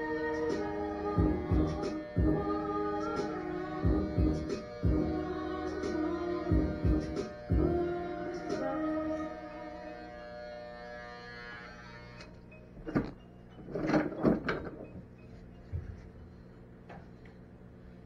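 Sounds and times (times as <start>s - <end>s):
music with long held notes: 0.0s - 12.7s
objects knocking and clattering: 12.8s - 15.1s.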